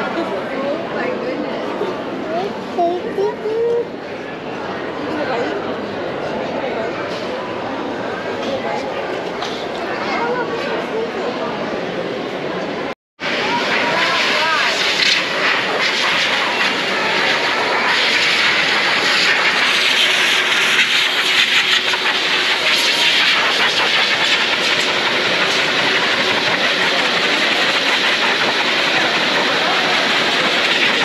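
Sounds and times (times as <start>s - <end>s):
livestock blower rushing air: 13.3s - 31.0s.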